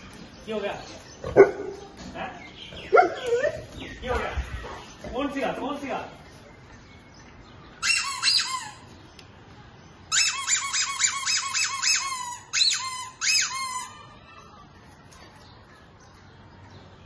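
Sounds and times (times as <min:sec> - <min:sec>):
squeaky dog toy squeaking: 0:07.8 - 0:08.9, 0:10.1 - 0:14.1.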